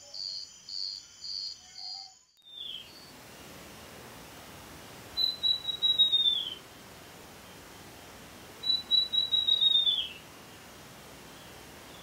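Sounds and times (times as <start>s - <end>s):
bird song high whistled notes: 5.2s - 6.6s, 8.6s - 10.1s.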